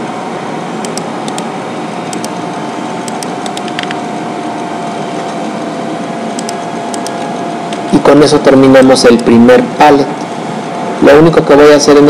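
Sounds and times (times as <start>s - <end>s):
background hiss and hum: 0.0s - 12.0s
mouse and keyboard clicks: 2.1s - 2.4s, 3.0s - 4.0s, 6.4s - 7.8s.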